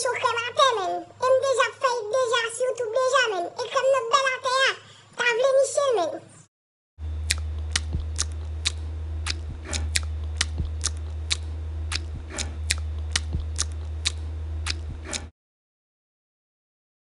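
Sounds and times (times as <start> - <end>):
steady low hum: 7.0 - 15.3
sharp regular ticks: 7.2 - 15.3.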